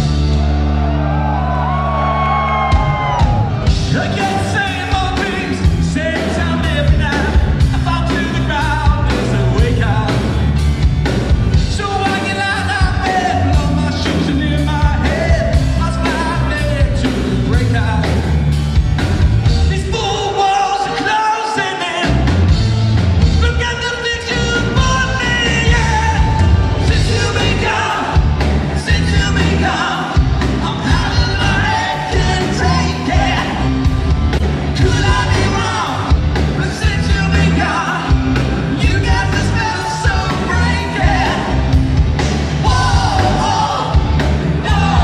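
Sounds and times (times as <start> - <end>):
live rock band playing: 0.0 - 45.0
lead vocal singing: 1.4 - 10.6, 11.5 - 18.3, 23.3 - 45.0.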